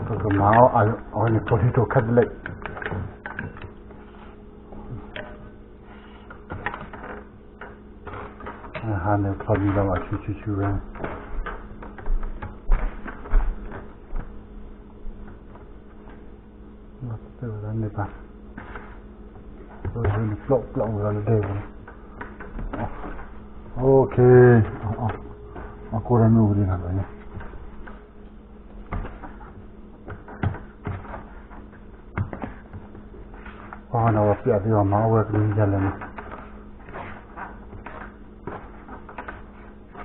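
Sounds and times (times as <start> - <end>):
hands kneading dough: 0.0 - 40.0
steady low hum: 0.0 - 40.0
dough thumping in a plastic bowl: 6.5 - 14.4, 28.7 - 34.4, 35.3 - 40.0.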